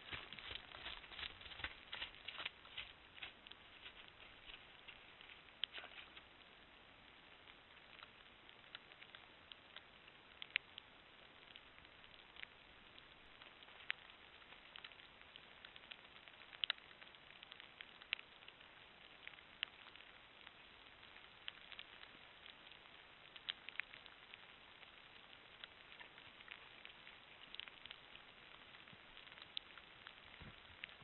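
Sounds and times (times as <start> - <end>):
light rain hiss: 0.0 - 31.0
sharp drip ticks: 7.5 - 28.6.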